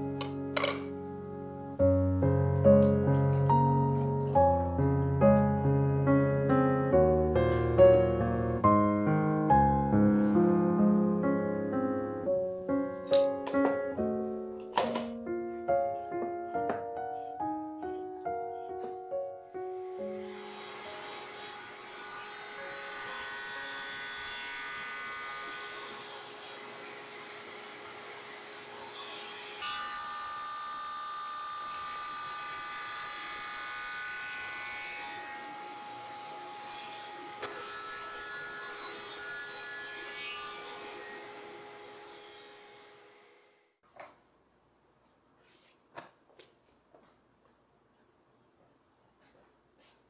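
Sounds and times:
table saw whining: 0:19.6 - 0:43.6
hiss of saw cut: 0:19.8 - 0:43.5.

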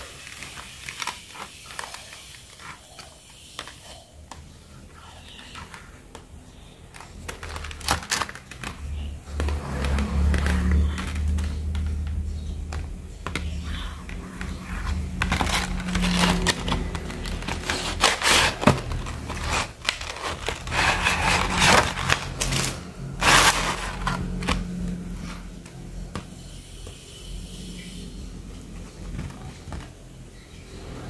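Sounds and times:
packaging rustling and crinkling: 0:00.0 - 0:25.5
sharp clicks and scrapes: 0:13.3 - 0:24.7.

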